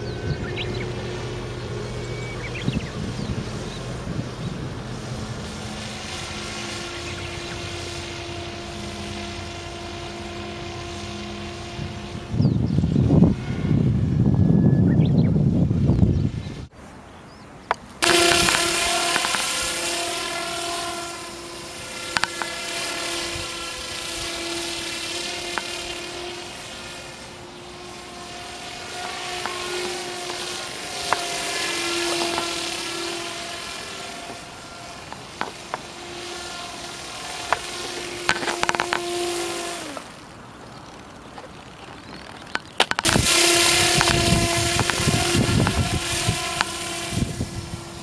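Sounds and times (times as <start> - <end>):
model aircraft propeller whine: 0.0 - 48.0.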